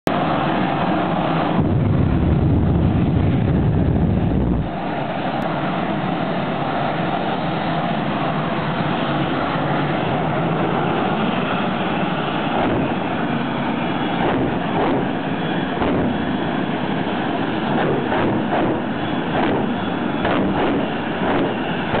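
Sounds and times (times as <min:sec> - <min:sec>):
jet turbine engine roaring: 0:00.1 - 0:22.0.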